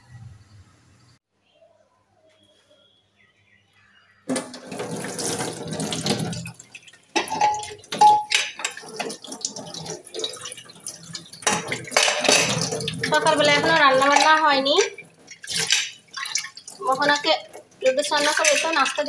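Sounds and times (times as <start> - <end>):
tap water running into metal sink: 4.3 - 19.0
water splashing on metal plate: 4.3 - 19.0.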